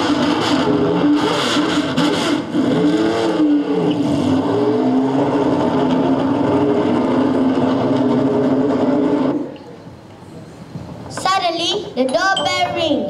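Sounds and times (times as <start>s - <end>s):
car engine revving: 0.0s - 9.6s.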